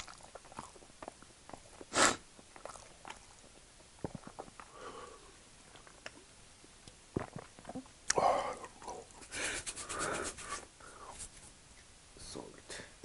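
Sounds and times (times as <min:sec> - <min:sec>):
person gulping: 0:00.0 - 0:05.1, 0:07.1 - 0:09.0.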